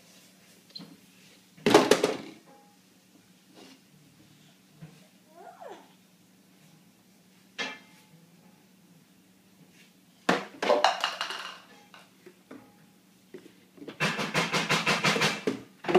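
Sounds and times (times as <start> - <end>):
plastic containers clattering: 10.3 - 11.7.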